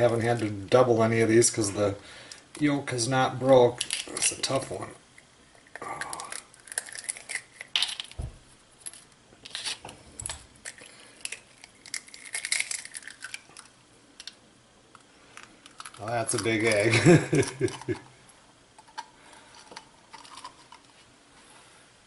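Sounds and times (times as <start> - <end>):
eggshell cracking and crunching: 3.7 - 18.1, 18.7 - 20.9.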